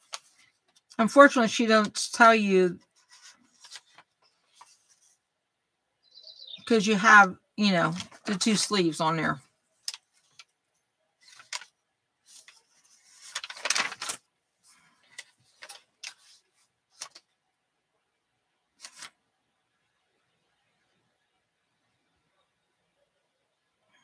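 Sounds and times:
handling clicks and rustles: 11.2s - 11.7s.

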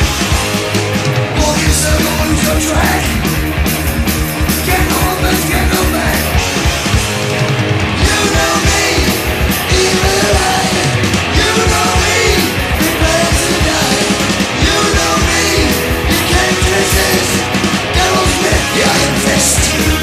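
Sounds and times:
driving drum beat: 0.0s - 20.0s
punk rock music: 0.0s - 20.0s
person singing: 1.4s - 3.2s, 4.6s - 6.4s, 8.0s - 20.0s.

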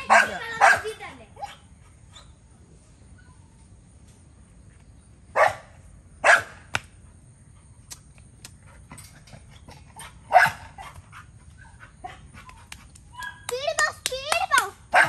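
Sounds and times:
dog barking: 0.0s - 2.2s, 5.4s - 6.6s, 10.3s - 10.9s.

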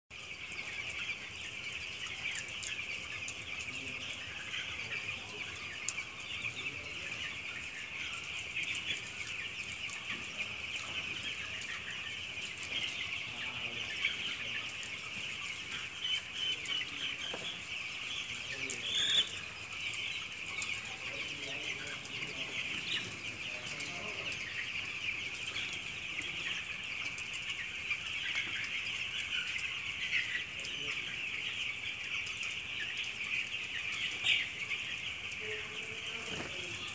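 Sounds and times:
chicks peeping: 0.1s - 36.9s.

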